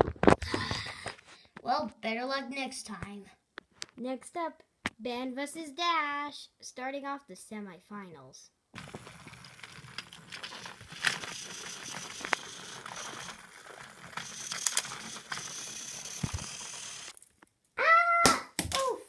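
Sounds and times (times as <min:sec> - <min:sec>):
toy train clicks: 0:08.8 - 0:17.2
toy train motor whirring: 0:08.8 - 0:17.2.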